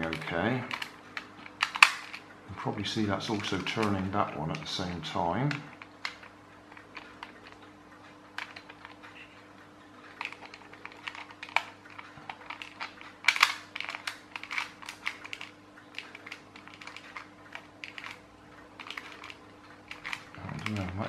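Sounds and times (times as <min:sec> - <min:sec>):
plastic gears clicking: 0:00.0 - 0:02.2, 0:10.0 - 0:21.0.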